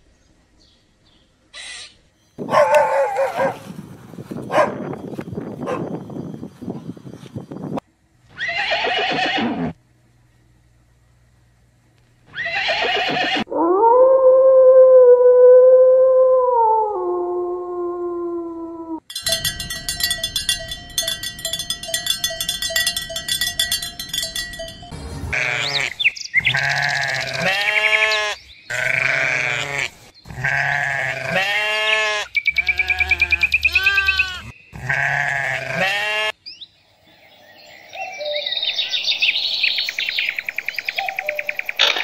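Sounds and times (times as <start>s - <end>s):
animal bleating cries: 8.3s - 9.8s, 12.3s - 13.5s, 25.3s - 36.4s
animal buzzing call: 8.3s - 9.8s, 12.3s - 13.5s.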